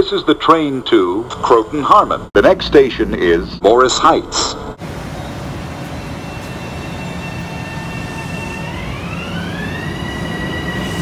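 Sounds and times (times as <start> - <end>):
electric train motor whine: 4.8 - 11.0.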